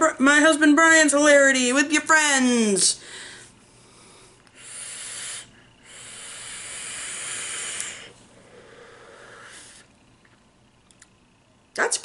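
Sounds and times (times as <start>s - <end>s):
air hissing through e-cigarette: 4.5s - 9.9s.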